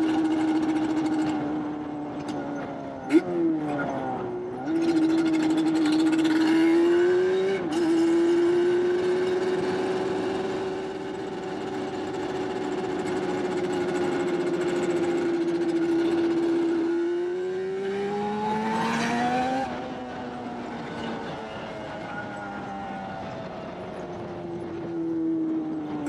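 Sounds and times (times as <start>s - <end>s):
two-stroke engine high revs: 4.6s - 20.4s.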